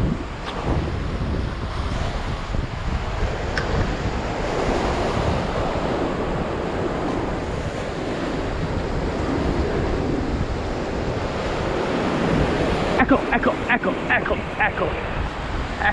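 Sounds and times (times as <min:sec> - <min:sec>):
wind buffeting microphone: 0:00.0 - 0:15.9.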